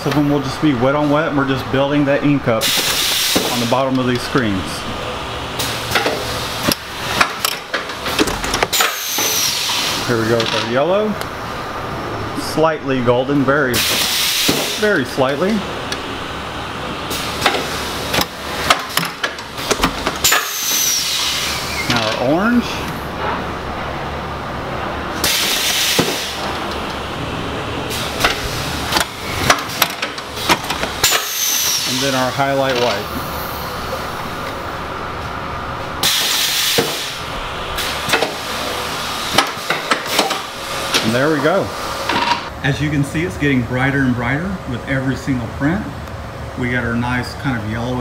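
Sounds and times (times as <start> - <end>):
steady hiss of air: 0.0 - 7.3, 8.0 - 18.8, 19.5 - 43.6
steady machine noise: 0.0 - 46.7
pneumatic air hiss: 2.6 - 3.7, 8.7 - 10.1, 13.7 - 14.9, 19.6 - 21.9, 25.2 - 26.5, 30.4 - 32.2, 36.0 - 37.2
print carriage clicks and knocks: 17.4 - 20.5, 28.2 - 31.2, 39.3 - 41.1.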